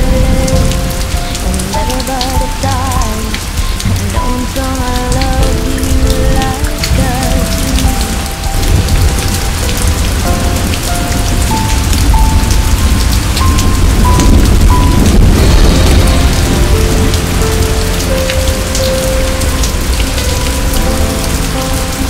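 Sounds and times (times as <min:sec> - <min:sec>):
quiet song: 0:00.0 - 0:22.0
rain falling: 0:00.0 - 0:22.0.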